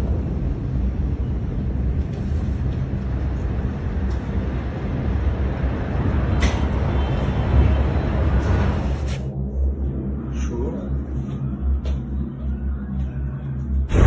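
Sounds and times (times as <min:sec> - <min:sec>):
low steady rumble: 0:09.3 - 0:14.0.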